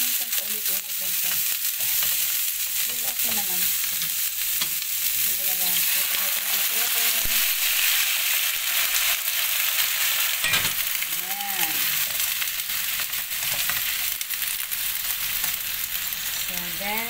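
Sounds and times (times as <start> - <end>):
vegetables sizzling in a wok: 0.0 - 17.0
spatula scraping a pan: 1.2 - 9.2.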